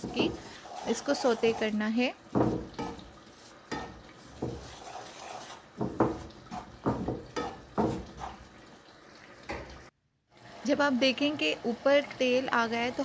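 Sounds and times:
wooden spoon scraping flour in pan: 0.0s - 8.4s.

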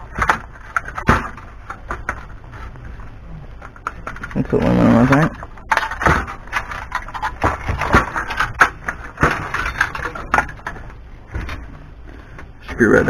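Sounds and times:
metal casing clanking and rattling: 3.7s - 11.6s.

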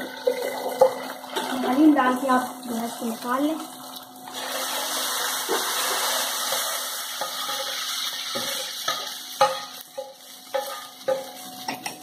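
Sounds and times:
hot oil hissing and sizzling: 0.0s - 12.0s
metal spoon scraping pan: 5.5s - 12.0s
spoon clinking on pan: 6.5s - 12.0s.

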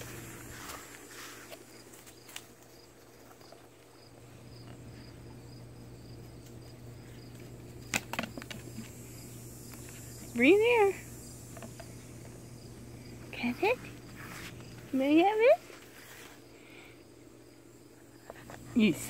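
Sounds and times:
cricket chirping: 0.0s - 19.0s
plastic frisbee clicks: 7.8s - 8.9s.

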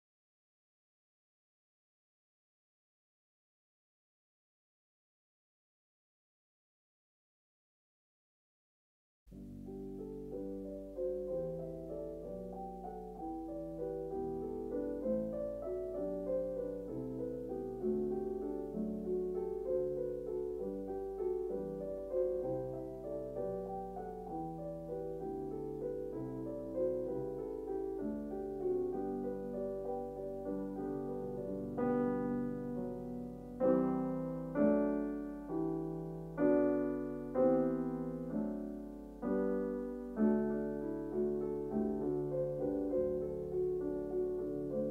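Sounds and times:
piano music: 9.3s - 44.9s.

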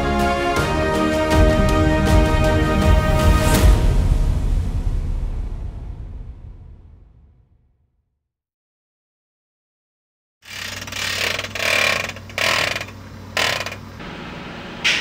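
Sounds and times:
harsh mechanical bursts: 10.4s - 15.0s
heavy machinery engine hum: 10.5s - 15.0s.

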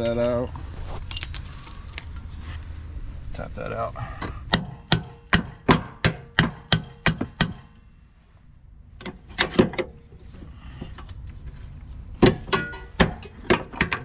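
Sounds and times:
hammer striking metal bolt: 4.5s - 7.8s, 12.2s - 14.0s.

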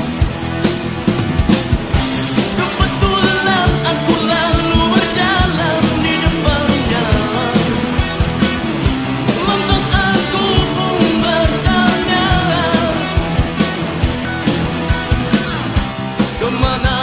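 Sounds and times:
rock band playing: 0.0s - 17.0s
steady drum beat: 0.0s - 17.0s
person singing lead vocal: 2.3s - 13.8s, 16.2s - 17.0s.

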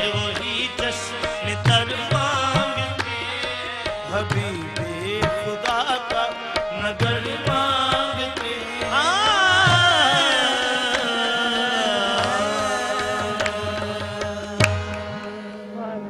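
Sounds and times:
men singing: 0.0s - 15.6s
tabla strokes: 0.0s - 15.8s
harmonium chords: 0.0s - 16.0s.

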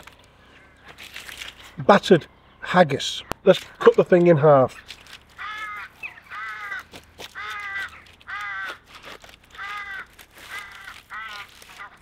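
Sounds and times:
bird calling: 4.6s - 12.0s.

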